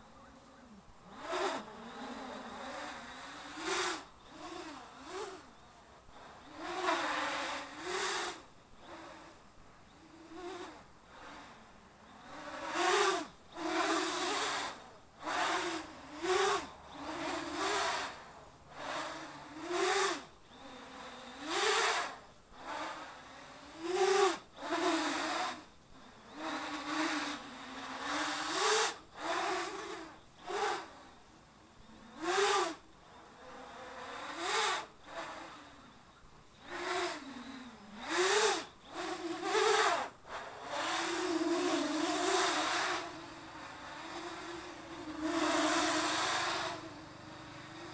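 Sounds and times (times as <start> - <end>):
drone motors and propellers whining: 1.1 - 47.9.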